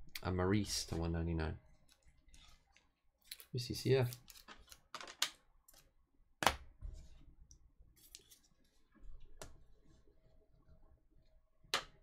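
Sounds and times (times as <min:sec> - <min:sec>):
trading cards rustling and clicking: 0:03.2 - 0:05.9.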